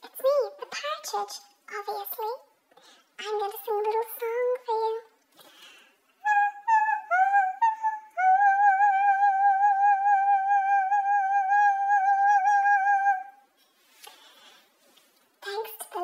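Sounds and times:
woman singing high notes: 6.2s - 13.4s.

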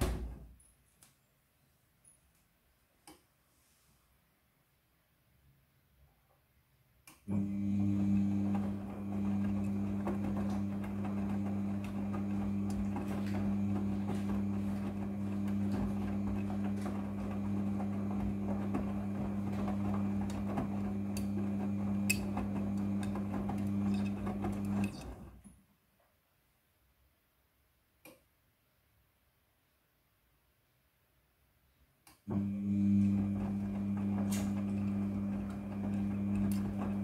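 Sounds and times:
laundry tumbling with knocks: 0.0s - 0.6s, 7.4s - 25.4s, 32.3s - 37.0s
washing machine motor hum: 7.3s - 25.5s, 32.3s - 37.0s.

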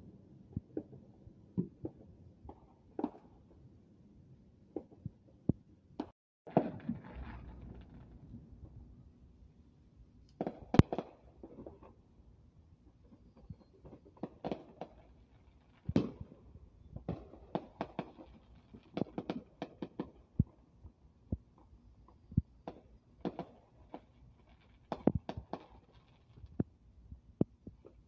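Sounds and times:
distant fireworks pops and bangs: 0.4s - 3.6s, 4.7s - 8.9s, 10.3s - 12.0s, 12.9s - 28.0s
crackling fireworks stars: 6.0s - 12.0s, 12.8s - 28.0s.

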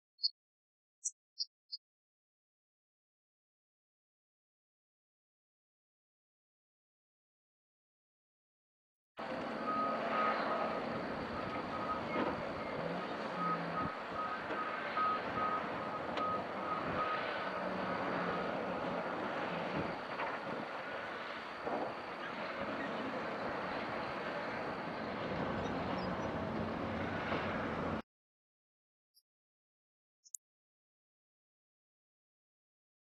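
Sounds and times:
bulldozer engine running: 9.2s - 28.0s
reversing alarm beeping: 9.5s - 18.7s.

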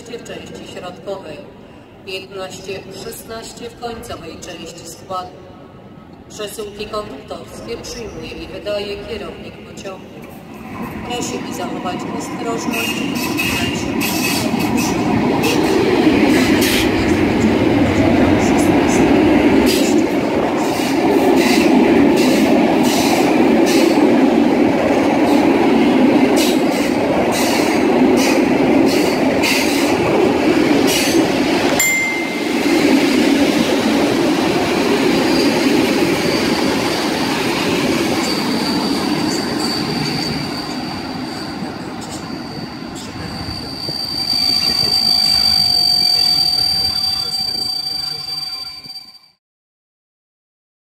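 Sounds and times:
train rumbling past: 5.5s - 49.1s
high wheel squeal: 38.0s - 49.4s.

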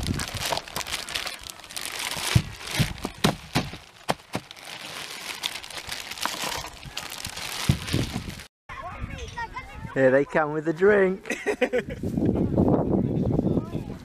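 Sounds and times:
plastic bag crinkling: 0.0s - 8.5s.

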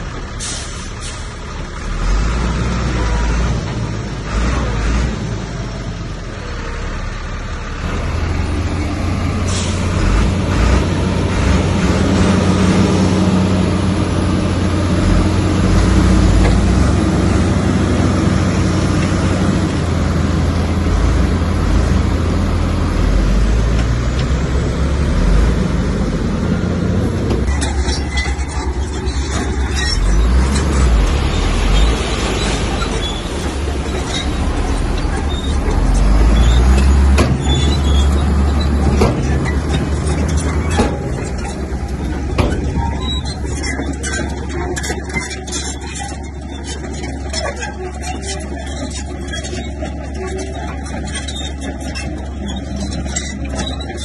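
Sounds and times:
heavy diesel engine rumbling: 0.0s - 54.0s
metal knocks and clanks: 14.8s - 22.1s, 27.0s - 54.0s.

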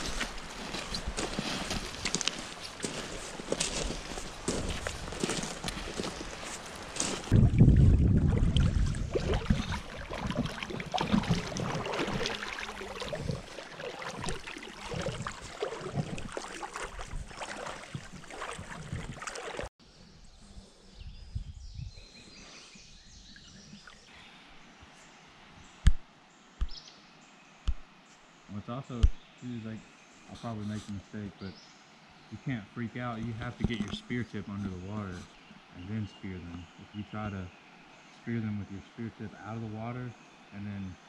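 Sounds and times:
water sloshing around wading legs: 0.0s - 19.7s
faint river ambience: 0.0s - 41.0s.

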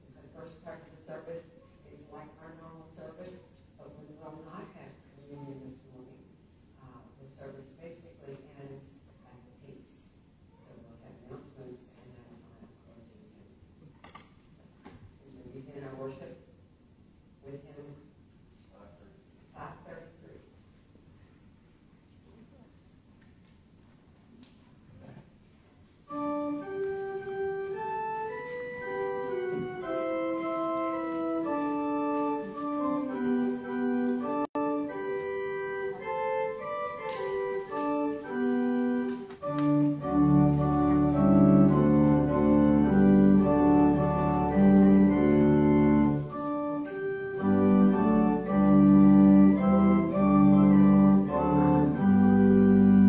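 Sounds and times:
church pipe organ playing hymn: 26.1s - 53.0s.

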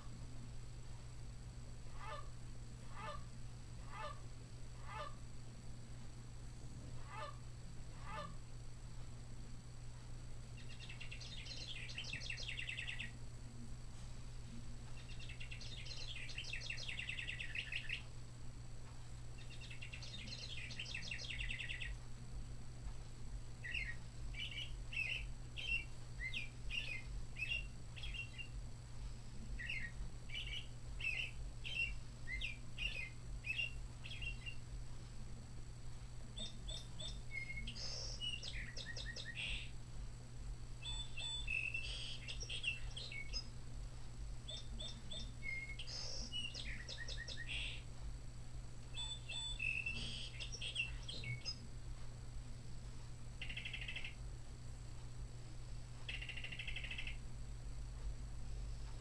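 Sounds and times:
recorded bird songs from speaker: 10.5s - 13.2s, 14.9s - 18.1s, 19.4s - 22.0s, 23.6s - 28.6s, 29.4s - 34.7s, 36.3s - 39.8s, 40.8s - 43.6s, 44.4s - 47.9s, 48.9s - 51.6s, 53.4s - 54.3s, 56.0s - 57.3s.

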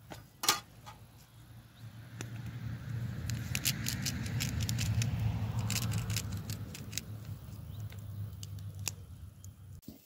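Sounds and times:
steak crackling on a grill: 2.2s - 9.8s.

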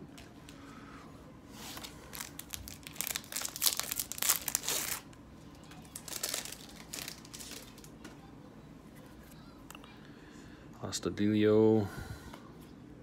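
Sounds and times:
plastic wrapper crinkling and tearing: 1.7s - 8.0s.

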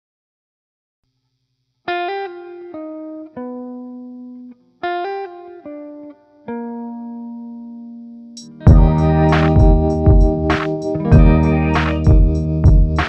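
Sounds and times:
plucked string melody: 8.5s - 13.0s.

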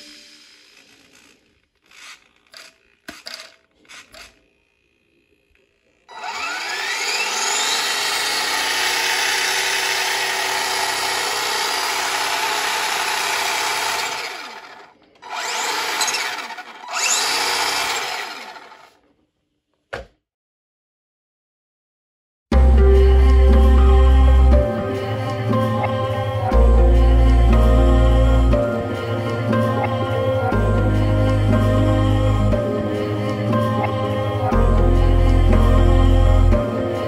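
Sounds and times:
electric rc truck motor whine: 0.0s - 3.1s, 3.8s - 19.0s.

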